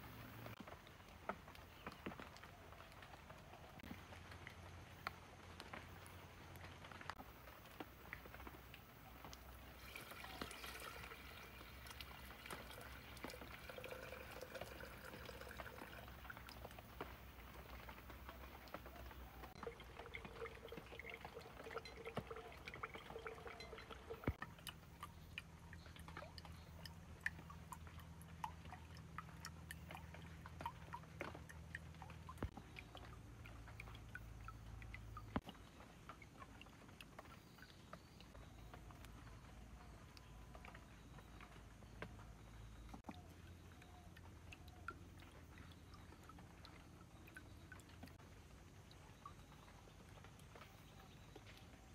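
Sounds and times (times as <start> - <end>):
faint water drips: 0.0 - 51.9
water pouring into filter: 7.6 - 35.6.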